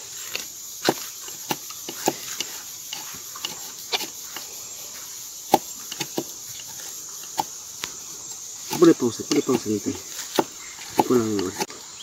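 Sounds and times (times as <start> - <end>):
knife cracking and scraping wood: 0.0 - 4.6, 5.4 - 11.8.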